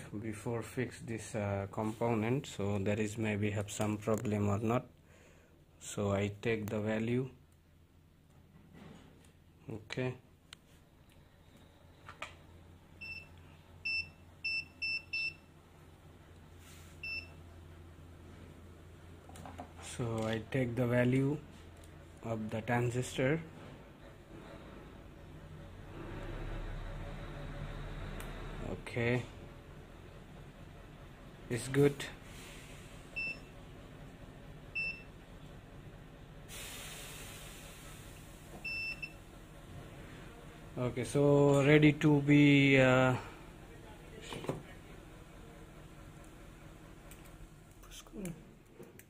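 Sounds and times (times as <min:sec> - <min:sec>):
multimeter high beep: 0:38.6 - 0:39.2.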